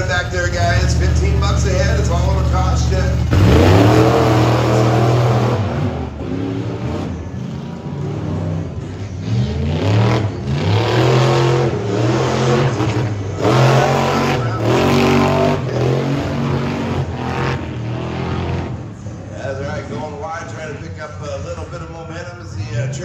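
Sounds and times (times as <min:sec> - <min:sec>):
truck engines revving: 0:00.0 - 0:23.0.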